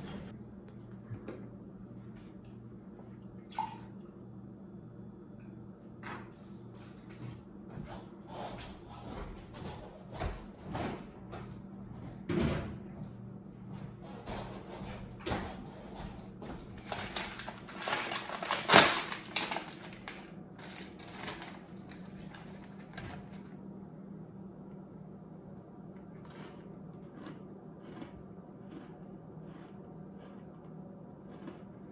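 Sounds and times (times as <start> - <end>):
low steady hum: 0.0 - 31.9
plastic package crinkling: 16.8 - 23.5.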